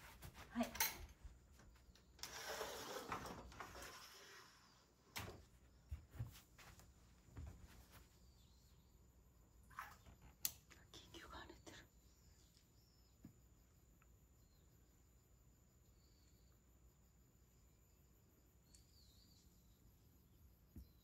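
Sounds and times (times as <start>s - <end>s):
sliding screen door rolling open: 2.1s - 5.4s.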